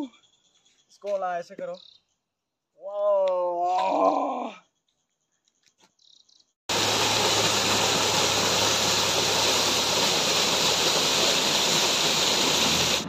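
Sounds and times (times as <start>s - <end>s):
waterfall splashing: 6.7s - 13.0s.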